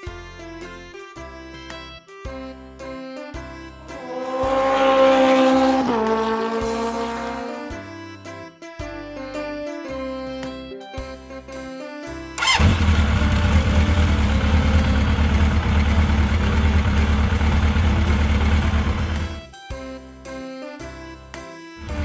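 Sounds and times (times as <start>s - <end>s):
light background music: 0.0s - 22.0s
motorcycle engine rumble: 3.9s - 7.7s, 12.4s - 19.5s.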